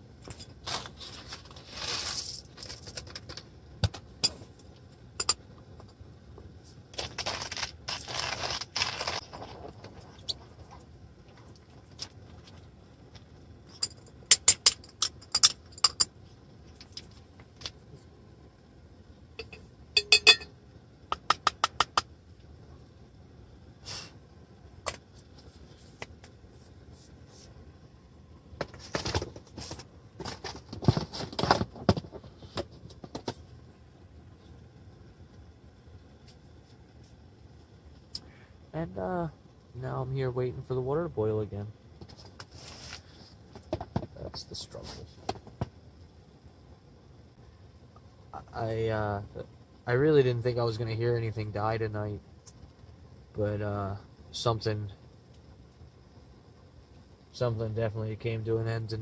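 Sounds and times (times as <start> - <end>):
rustling: 0.3 - 3.4, 42.0 - 43.7.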